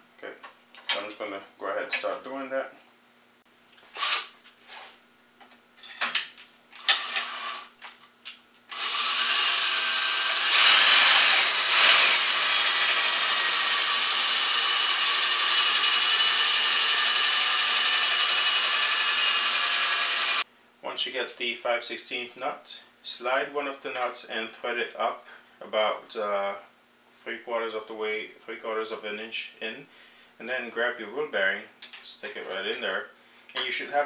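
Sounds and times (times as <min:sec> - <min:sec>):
cordless drill running: 0:04.0 - 0:04.3, 0:06.8 - 0:07.8, 0:08.7 - 0:20.4.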